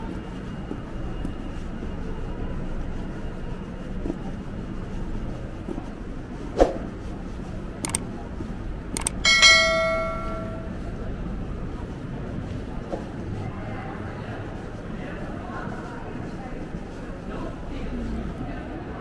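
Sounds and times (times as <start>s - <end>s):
city street ambience: 0.0s - 19.0s
mouse clicks: 9.0s - 9.2s
notification bell ding: 9.2s - 10.7s.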